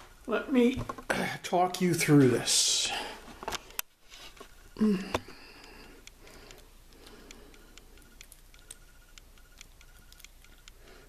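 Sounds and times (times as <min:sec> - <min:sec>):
faint regular ticking: 0:04.5 - 0:11.0.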